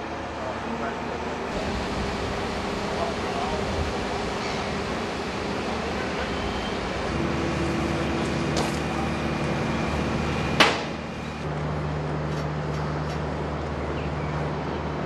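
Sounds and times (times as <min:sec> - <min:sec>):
machine hum: 0:01.2 - 0:12.6
sharp loud knock: 0:10.6 - 0:11.0.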